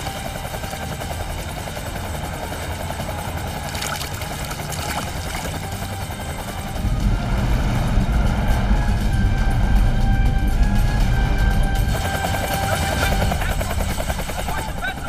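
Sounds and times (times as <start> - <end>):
low engine drone: 0.0 - 15.0
water splashes: 3.6 - 5.7.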